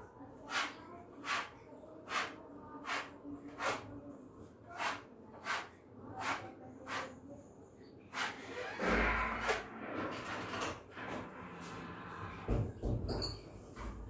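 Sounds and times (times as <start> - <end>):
spatula scraping across wall: 0.4 - 3.9, 4.6 - 7.2, 8.1 - 12.3.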